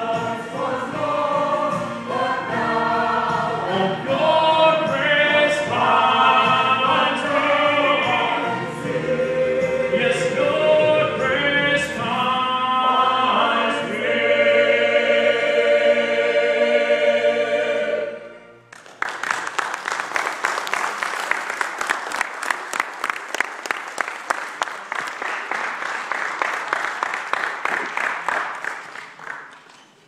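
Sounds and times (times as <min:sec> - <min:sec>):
choir and man singing: 0:00.0 - 0:18.4
congregation applauding: 0:18.7 - 0:30.0.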